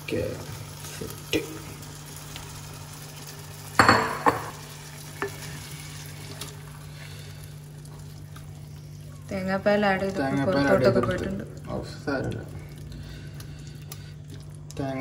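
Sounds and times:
food frying in oil: 0:00.0 - 0:15.0
steady low hum: 0:00.0 - 0:15.0
utensil stirring: 0:04.0 - 0:15.0.

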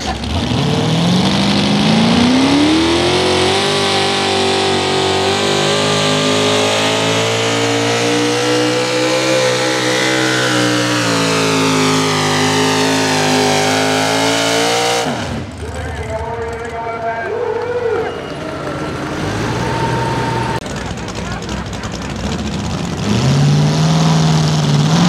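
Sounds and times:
engine revving high: 0:00.0 - 0:15.5, 0:18.2 - 0:20.7.

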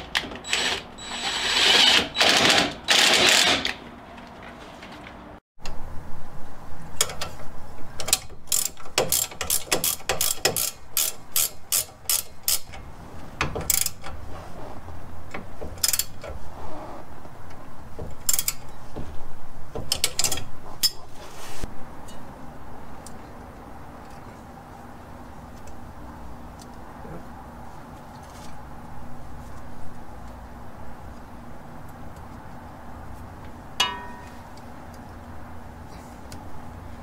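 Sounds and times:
ratchet wrench clicking: 0:08.1 - 0:12.8.

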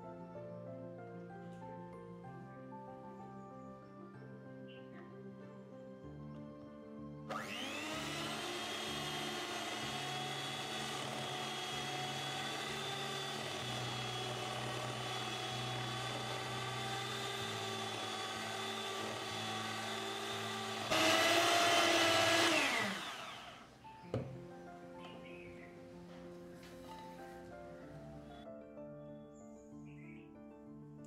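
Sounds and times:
electric hand mixer whining: 0:07.3 - 0:23.8.

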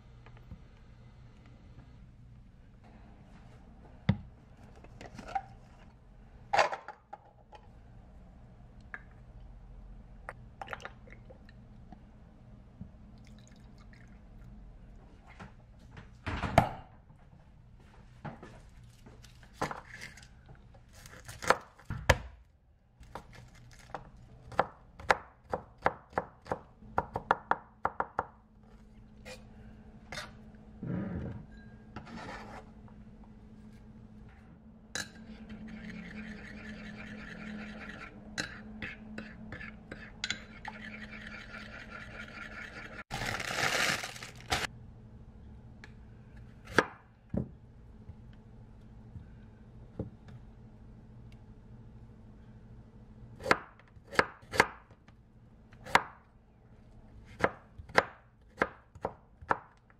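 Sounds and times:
plastic bag crinkling: 0:43.1 - 0:44.7.

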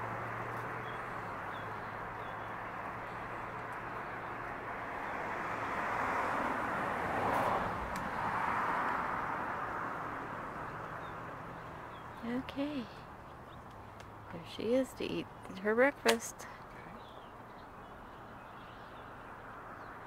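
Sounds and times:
vehicle tyre noise passing: 0:00.0 - 0:14.4.

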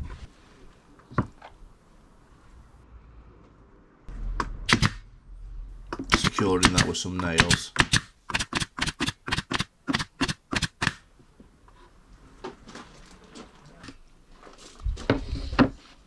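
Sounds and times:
nail gun firing into wood: 0:04.7 - 0:05.0, 0:06.0 - 0:11.0.

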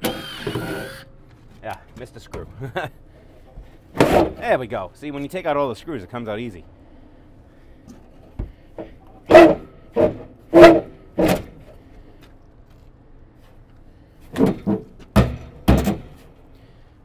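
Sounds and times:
sheet metal clanking: 0:09.3 - 0:11.7.

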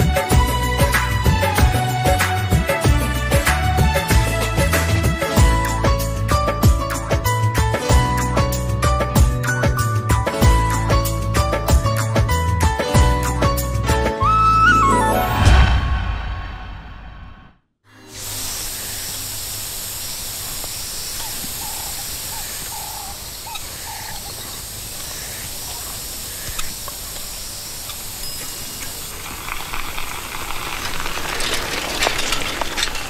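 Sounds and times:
sprayer hissing: 0:18.0 - 0:30.8
faint chirps: 0:20.0 - 0:29.4.

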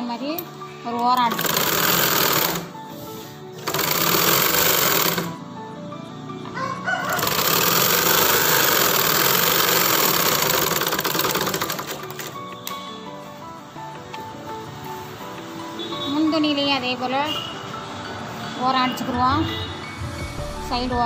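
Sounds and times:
sewing machine stitching: 0:01.2 - 0:02.7, 0:03.6 - 0:05.4, 0:07.2 - 0:12.3.

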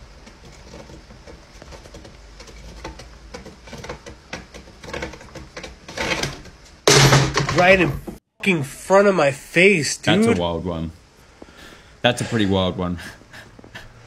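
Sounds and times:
picture frame crashing down: 0:06.0 - 0:08.1.

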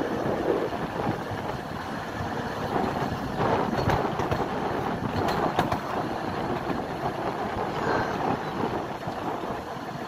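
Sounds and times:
train wheels rumbling on rails: 0:00.0 - 0:10.0
wheels clicking over rail joints: 0:00.0 - 0:10.0.

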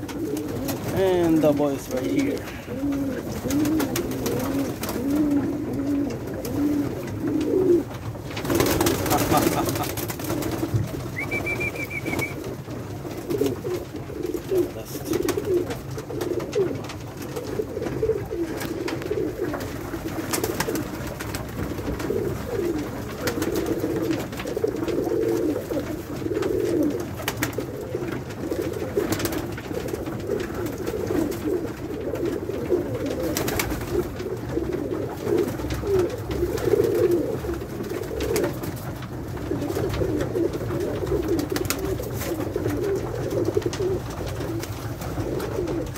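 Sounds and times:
pigeons cooing: 0:00.0 - 0:45.9.

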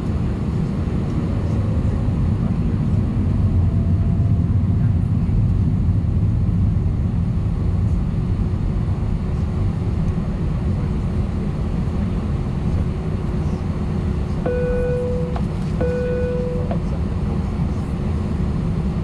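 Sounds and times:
jet engines low rumble: 0:00.0 - 0:19.0
faint steady hum: 0:14.4 - 0:16.8.

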